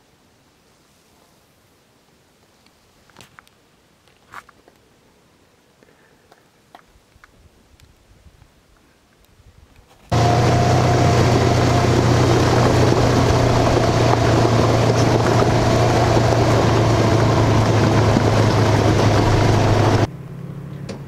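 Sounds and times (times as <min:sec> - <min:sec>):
vehicle engine running: 0:10.1 - 0:21.0.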